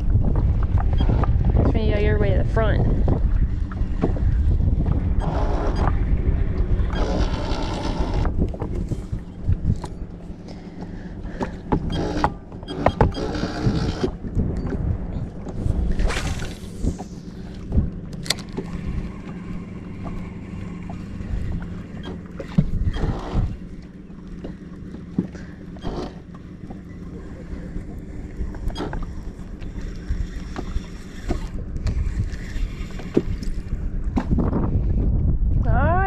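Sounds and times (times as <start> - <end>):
wind noise: 0.0 - 10.2, 11.2 - 20.3, 30.0 - 36.0
boat motor humming: 0.0 - 36.0
water against boat: 0.0 - 36.0.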